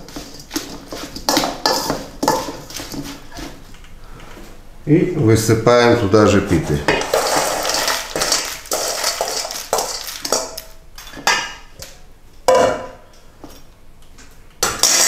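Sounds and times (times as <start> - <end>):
metal spoon scraping bowl: 0.0 - 3.6
croutons pouring into metal bowl: 7.0 - 10.6.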